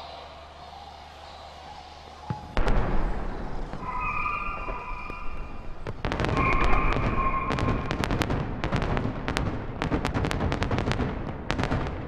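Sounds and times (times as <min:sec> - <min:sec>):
firework shells bursting: 0:02.6 - 0:11.8.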